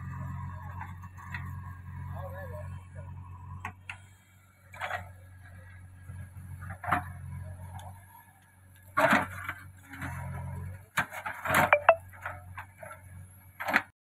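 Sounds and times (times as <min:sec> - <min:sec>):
diesel engines running: 0:00.0 - 0:10.9
brief metallic ring: 0:11.8 - 0:12.0.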